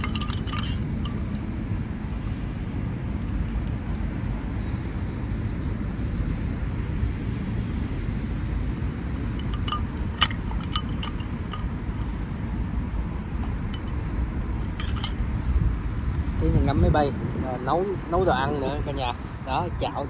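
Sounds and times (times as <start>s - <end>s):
spoon and ice clinking on glass: 0.0s - 1.4s, 9.3s - 12.2s, 13.4s - 14.0s, 14.6s - 15.4s.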